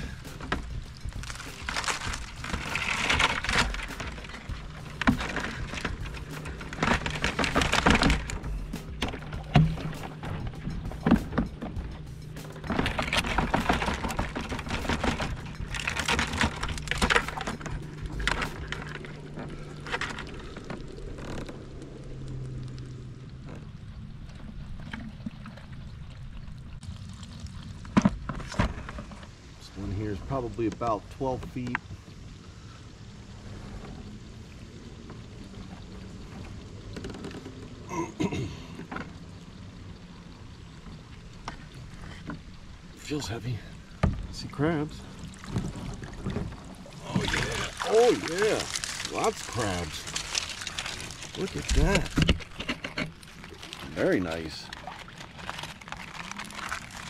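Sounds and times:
wet rope hauled by hand: 0.0 - 10.4, 45.3 - 57.0
rope creaking on hull: 0.0 - 25.9, 26.8 - 32.0, 33.3 - 39.6, 40.4 - 57.0
water dripping and splashing: 0.0 - 32.7, 34.0 - 57.0
low water wash: 0.0 - 57.0
wire trap rattling and clattering: 0.4 - 11.9, 12.5 - 20.3, 47.3 - 53.5.

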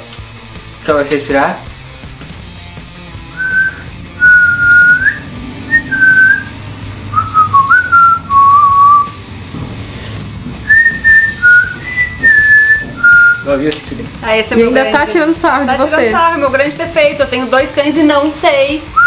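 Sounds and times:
boy whistling a tune: 3.4 - 6.5, 7.1 - 9.2, 10.7 - 13.5.

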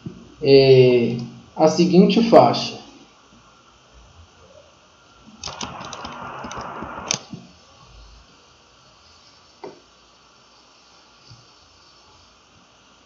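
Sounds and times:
stylus scratching on tablet screen: 5.5 - 7.1.

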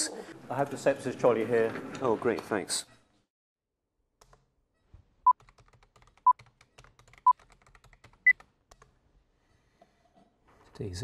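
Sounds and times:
computer keyboard typing clicks: 5.3 - 8.9.

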